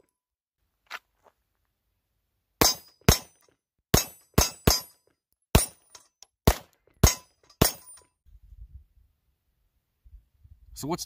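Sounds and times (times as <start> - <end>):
pistol shots: 2.6 - 3.3, 3.9 - 5.8, 6.4 - 8.0.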